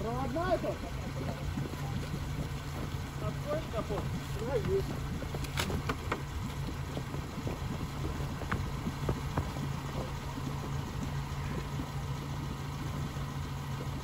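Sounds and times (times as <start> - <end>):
vehicle engine idling: 0.0 - 14.0
sharp clicks and knocks: 5.3 - 6.6.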